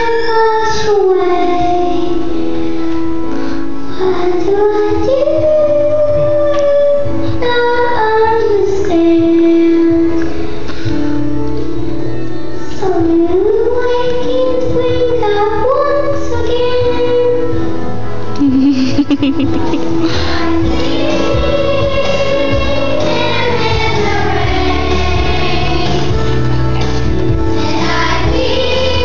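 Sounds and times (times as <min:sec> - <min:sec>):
child singing: 0:04.0 - 0:10.2, 0:12.8 - 0:17.5, 0:20.4 - 0:26.1, 0:27.6 - 0:29.0
instrumental accompaniment: 0:16.7 - 0:29.0.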